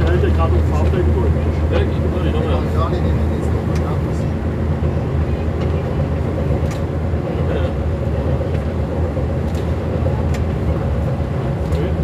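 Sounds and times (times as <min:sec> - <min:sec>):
diesel engine running: 0:00.0 - 0:12.0
railcar rumble: 0:00.0 - 0:12.0.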